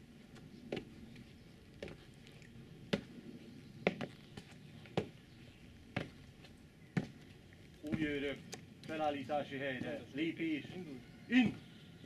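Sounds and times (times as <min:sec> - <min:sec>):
boots marching on brick paving: 0:00.2 - 0:03.2, 0:03.8 - 0:10.8.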